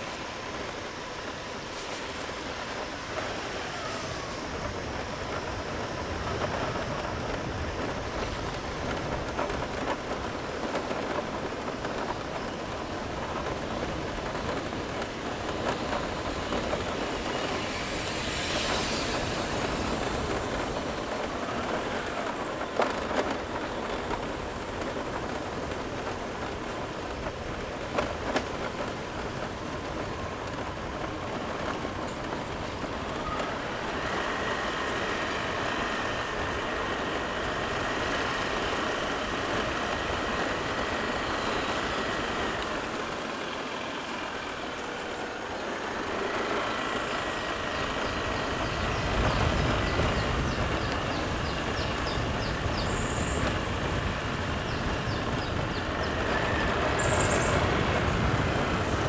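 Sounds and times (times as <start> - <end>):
hiss: 0.0 - 4.6, 17.0 - 22.0
motorbike engine rumble: 0.0 - 59.0
road noise: 0.0 - 59.0
wind buffeting microphone: 0.0 - 59.0.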